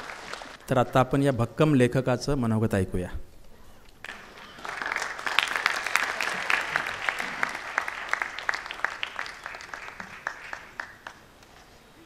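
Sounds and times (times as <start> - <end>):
audience applauding: 0.0 - 0.8, 4.0 - 11.3.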